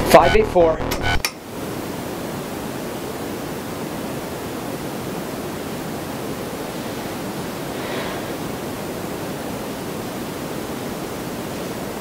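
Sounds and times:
static hiss: 0:00.0 - 0:12.0.

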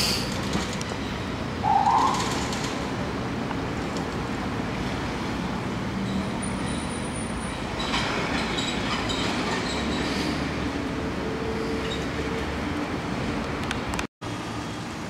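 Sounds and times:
city road traffic: 0:00.0 - 0:15.0.

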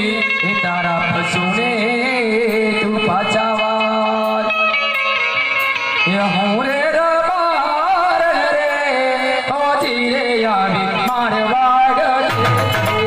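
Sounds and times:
person singing folk melody: 0:00.0 - 0:05.1, 0:05.9 - 0:13.0
held instrumental notes: 0:10.8 - 0:13.0.

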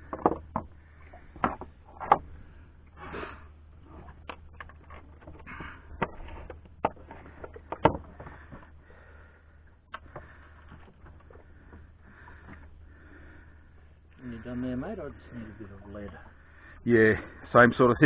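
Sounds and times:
fishing gear knocking and clicking: 0:00.0 - 0:02.3, 0:04.0 - 0:08.8
low steady rumble: 0:00.0 - 0:18.0.

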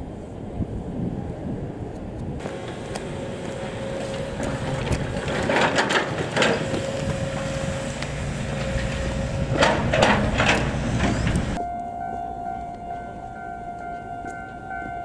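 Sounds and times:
low vehicle rumble: 0:01.4 - 0:15.0
level crossing warning bell: 0:02.4 - 0:10.5, 0:11.6 - 0:15.0.

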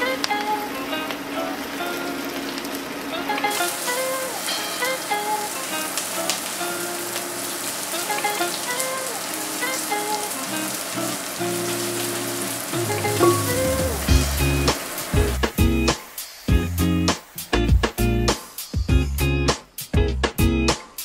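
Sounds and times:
onions sizzling in oil: 0:00.0 - 0:18.9
upbeat background music: 0:12.8 - 0:20.8.

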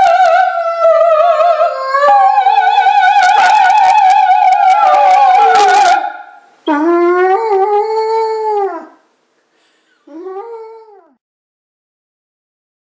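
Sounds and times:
operatic singing: 0:00.0 - 0:06.4
dog howling: 0:00.0 - 0:09.0, 0:10.1 - 0:11.2.

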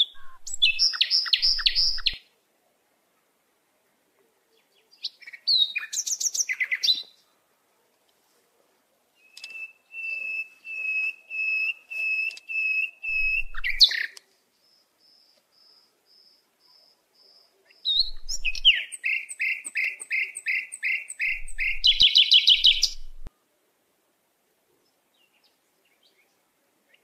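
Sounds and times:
high bird peeps: 0:00.0 - 0:02.2, 0:09.3 - 0:14.1, 0:17.9 - 0:23.3
songbird singing: 0:00.0 - 0:02.4, 0:03.8 - 0:07.4, 0:09.1 - 0:23.5, 0:24.7 - 0:27.0.

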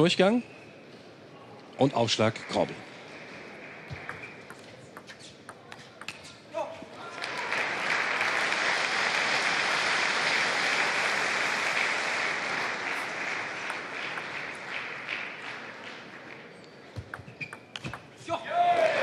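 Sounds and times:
crowd applauding: 0:07.1 - 0:16.4.

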